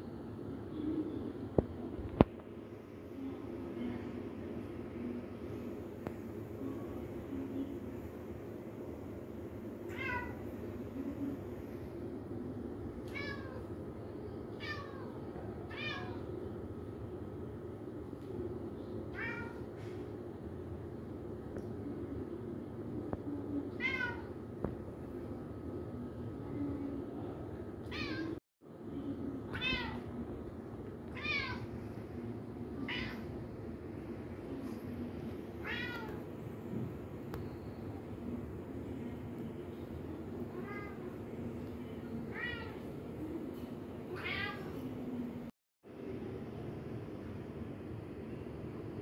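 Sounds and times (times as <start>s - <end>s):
steady low hum: 0.0s - 49.0s
cat meowing: 13.1s - 13.6s, 14.6s - 16.2s, 19.1s - 19.6s, 27.8s - 28.4s, 29.5s - 30.0s, 31.1s - 31.6s, 32.8s - 33.3s, 35.6s - 36.2s.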